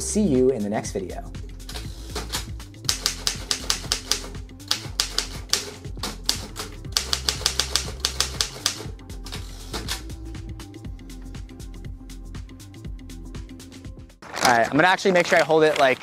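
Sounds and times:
background music: 0.0s - 16.0s
typewriter keystroke clacks: 2.3s - 8.9s.

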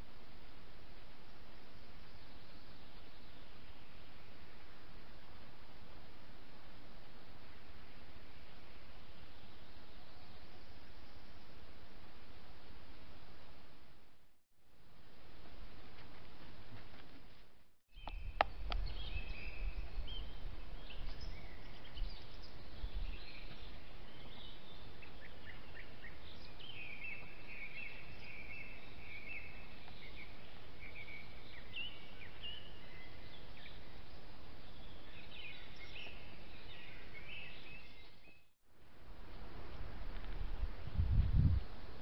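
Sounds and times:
small birds chirping: 17.9s - 38.5s.

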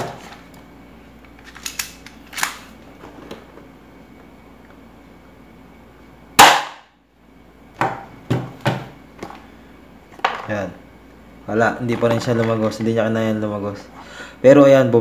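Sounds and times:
airsoft pistol shot: 6.4s - 6.9s.

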